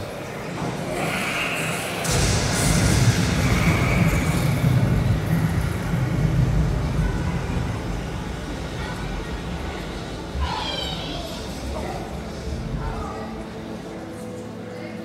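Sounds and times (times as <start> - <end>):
loud deep rumble: 0.9 - 13.1
hiss: 1.0 - 8.1.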